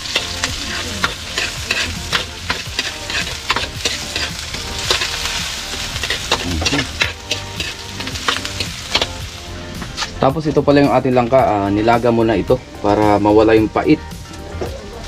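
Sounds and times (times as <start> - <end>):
metal spoon scraping a wok: 0.0 - 9.2
onion and garlic sizzling in oil: 0.0 - 13.8.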